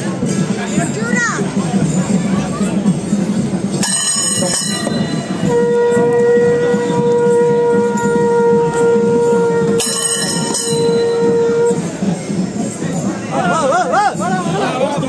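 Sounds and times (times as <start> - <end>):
crowd noise: 0.0 - 15.0
high metallic ringing: 1.6 - 12.0
long horn note: 5.4 - 12.0.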